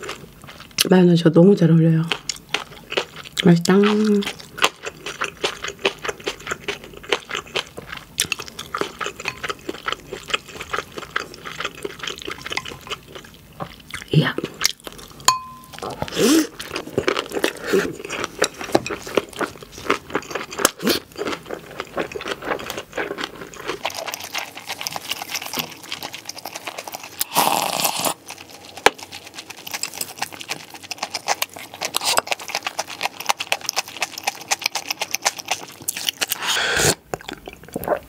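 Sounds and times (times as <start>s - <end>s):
chewing: 0.0s - 0.9s, 2.0s - 38.0s
noodle slurping: 23.5s - 38.0s
broth drunk from bowl: 27.2s - 28.2s.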